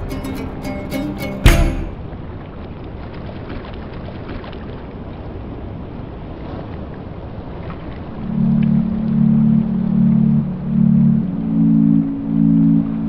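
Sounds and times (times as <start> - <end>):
ocean water sloshing: 0.0 - 11.2
small splashes: 2.5 - 5.4.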